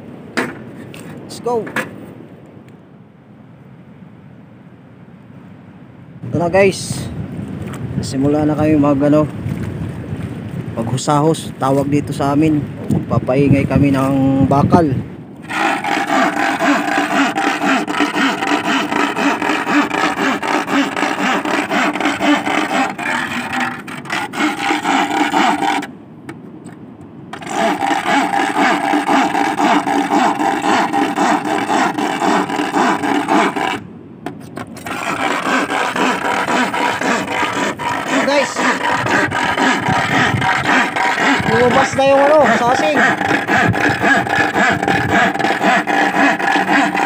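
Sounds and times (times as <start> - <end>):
iron rod grinding on iron plate: 15.4 - 25.9, 27.3 - 47.0.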